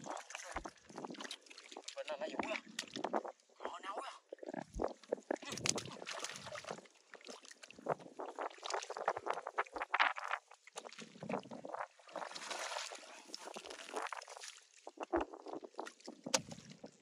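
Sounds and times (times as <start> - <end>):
hands splashing in muddy water: 5.3 - 15.0, 15.6 - 16.9.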